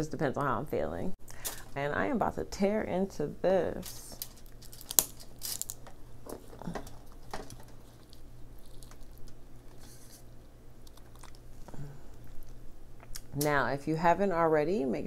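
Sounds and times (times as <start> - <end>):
shell snaps and scraping: 3.8 - 11.4
crab shell cracking: 4.2 - 13.3.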